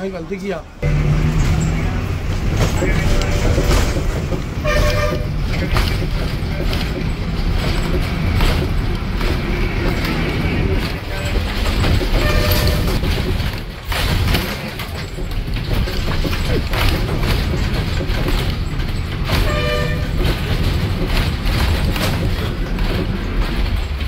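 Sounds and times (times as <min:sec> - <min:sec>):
bus engine rumbling: 0:00.0 - 0:24.0
vehicle horn honking: 0:04.6 - 0:05.4, 0:12.1 - 0:13.0, 0:19.4 - 0:20.2.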